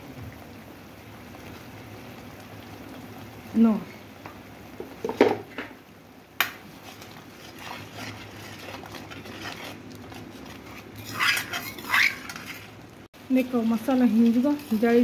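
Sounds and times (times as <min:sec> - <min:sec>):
paste sizzling in oil: 0:06.2 - 0:15.0.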